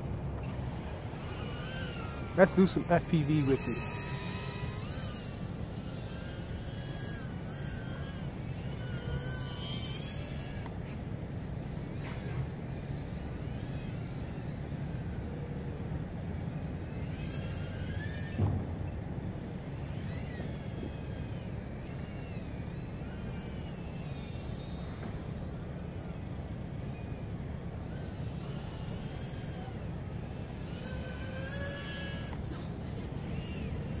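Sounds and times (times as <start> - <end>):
quadcopter motors whining: 0.0 - 34.0
short thump: 18.4 - 18.8.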